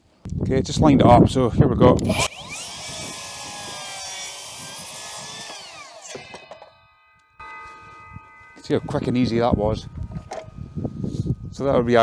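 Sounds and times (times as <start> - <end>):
circular saw cutting wood: 2.0 - 11.3.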